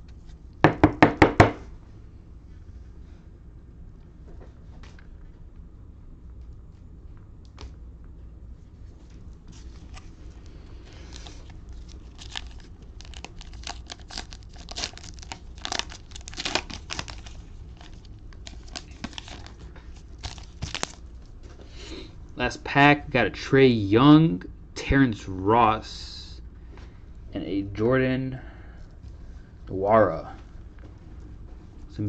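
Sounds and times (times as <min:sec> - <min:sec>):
cellophane wrapper crinkling: 0:09.2 - 0:21.4.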